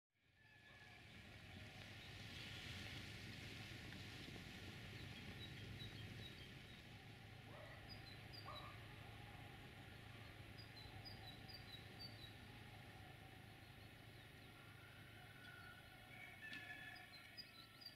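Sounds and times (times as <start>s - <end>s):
small birds chirping: 4.8s - 14.6s
steady low hum: 4.8s - 15.4s.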